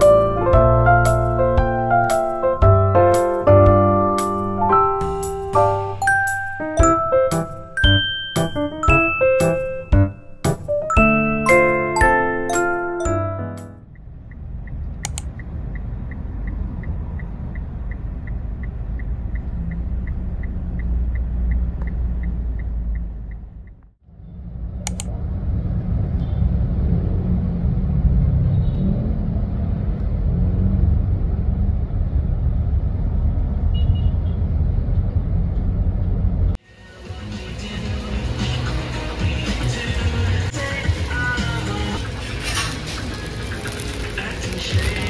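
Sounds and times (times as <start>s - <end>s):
light ticking: 13.9s - 23.9s.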